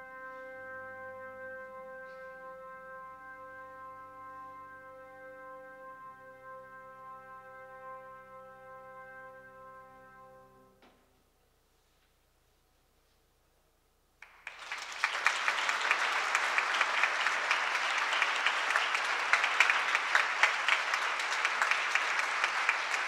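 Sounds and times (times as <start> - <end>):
audience applause: 14.2 - 23.0.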